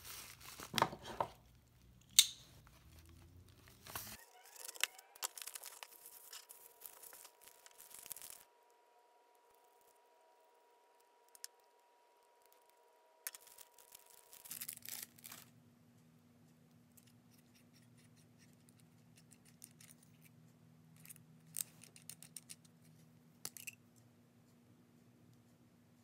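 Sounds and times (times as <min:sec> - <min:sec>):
plastic sleeve crinkle: 0:00.0 - 0:00.9, 0:02.6 - 0:08.5, 0:13.3 - 0:15.5.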